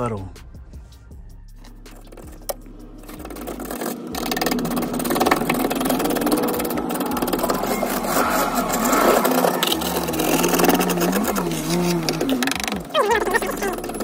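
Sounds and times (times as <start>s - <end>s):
metal pick scraping ice: 3.1s - 14.0s.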